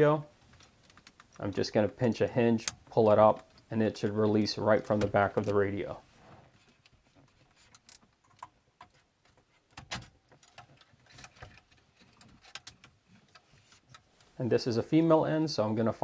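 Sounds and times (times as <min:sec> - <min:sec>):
plastic wiring connectors clicking: 0:00.5 - 0:03.7.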